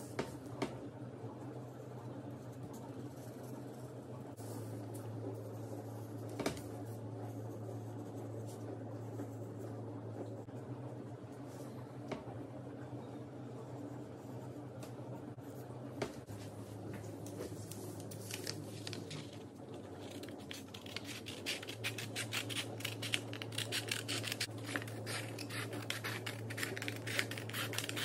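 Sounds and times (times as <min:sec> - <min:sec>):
steady low hum: 0:00.0 - 0:28.0
scissors snipping paper: 0:18.0 - 0:28.0.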